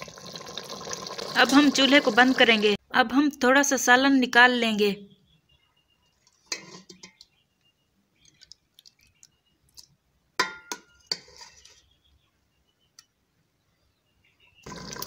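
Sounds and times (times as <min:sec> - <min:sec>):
ladle clinking against pot: 0:06.5 - 0:07.2, 0:10.4 - 0:11.6.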